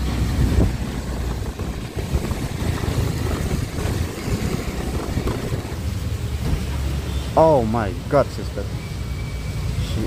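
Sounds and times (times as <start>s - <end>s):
wind buffeting microphone: 0.0s - 6.0s
vehicle rumble: 0.0s - 10.0s.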